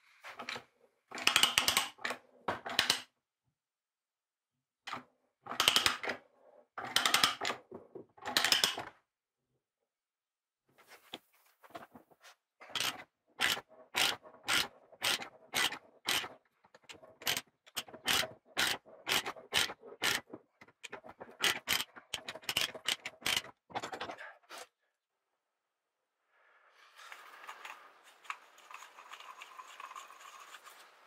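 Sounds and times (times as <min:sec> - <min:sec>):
die stock scraping strokes: 0:12.3 - 0:23.5.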